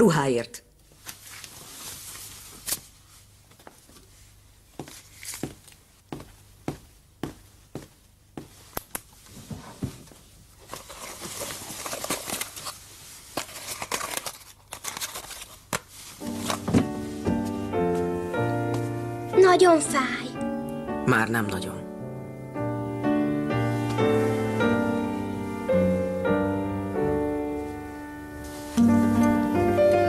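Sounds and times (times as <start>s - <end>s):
cloth rustling: 0.9s - 19.3s, 23.5s - 25.8s, 27.5s - 29.7s.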